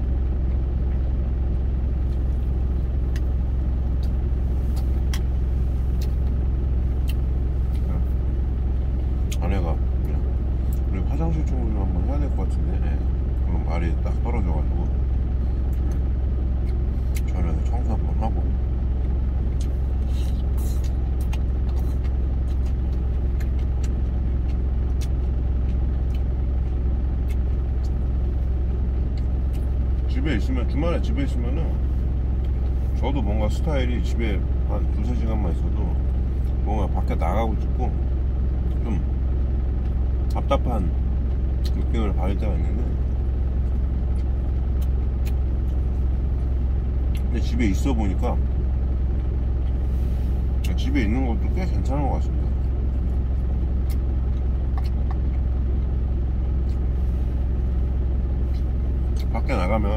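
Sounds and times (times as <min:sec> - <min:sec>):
truck engine idling: 0:00.0 - 0:59.9
chewing: 0:19.4 - 0:29.8, 0:42.9 - 0:47.3, 0:52.6 - 0:57.5, 0:58.2 - 0:59.3.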